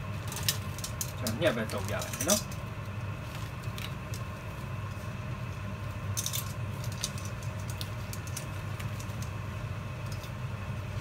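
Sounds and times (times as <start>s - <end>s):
mixture bubbling: 0.0s - 11.0s
steady low hum: 0.0s - 11.0s
sharp clicks and crackles: 6.1s - 9.4s.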